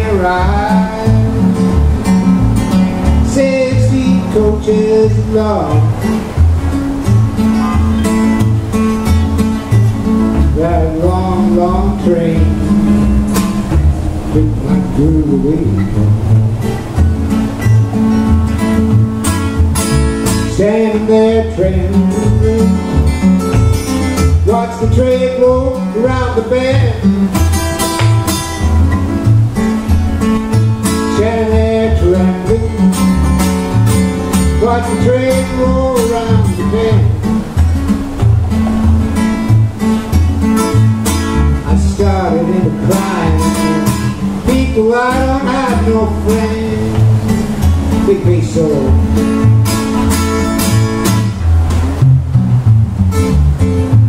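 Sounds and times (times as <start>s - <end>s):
man singing into a microphone: 0.0s - 1.7s, 3.2s - 6.0s, 10.5s - 13.1s, 14.0s - 16.3s, 20.5s - 23.0s, 24.4s - 27.2s, 31.1s - 33.0s, 34.5s - 37.5s, 41.6s - 49.1s
acoustic guitars strumming: 0.0s - 54.0s.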